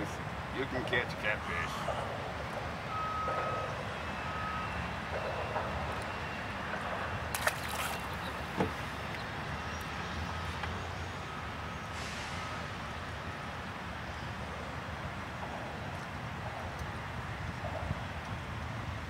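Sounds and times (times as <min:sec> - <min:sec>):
high reversing beep: 0:02.9 - 0:06.5.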